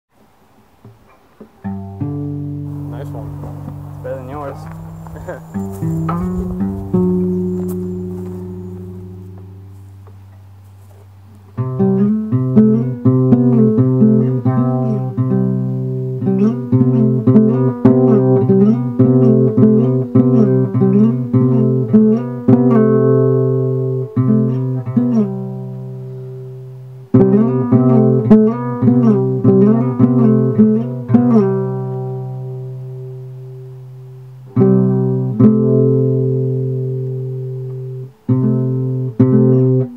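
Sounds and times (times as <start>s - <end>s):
picked guitar notes: 0.8s - 39.9s
held bass note: 2.0s - 12.1s.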